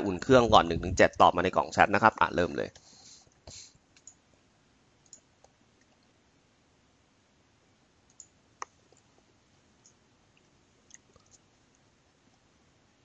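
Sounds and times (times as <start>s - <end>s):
faint sharp clicks: 5.0s - 6.1s, 8.1s - 9.1s.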